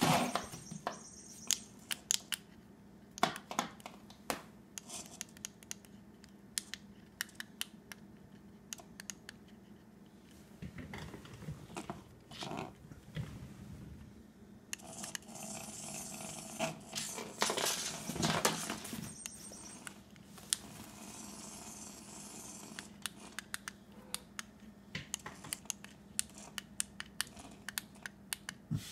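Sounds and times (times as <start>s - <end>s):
toy electric motor whirring: 14.8s - 19.9s, 20.9s - 23.5s.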